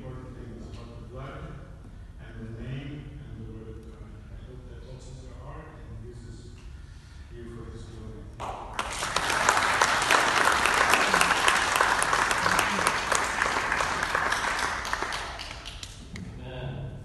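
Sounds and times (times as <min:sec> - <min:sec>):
audience clapping: 0:08.4 - 0:16.2.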